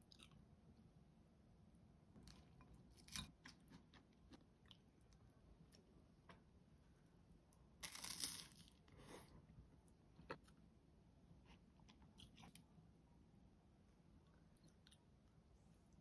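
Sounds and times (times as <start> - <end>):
toast being bitten and chewed: 2.2 - 5.1, 7.8 - 8.8.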